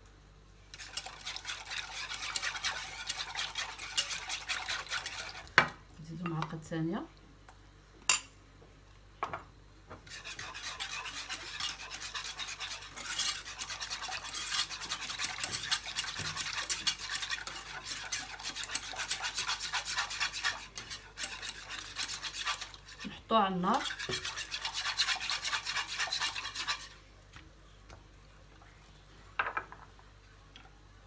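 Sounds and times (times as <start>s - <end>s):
whisk stirring in a bowl: 0.7s - 5.6s, 10.0s - 27.0s.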